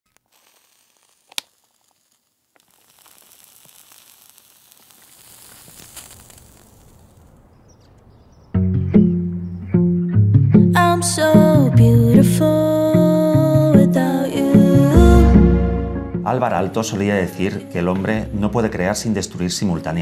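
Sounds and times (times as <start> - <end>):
faint crackling hiss: 0.1 - 8.6
plucked guitar music: 8.6 - 20.0.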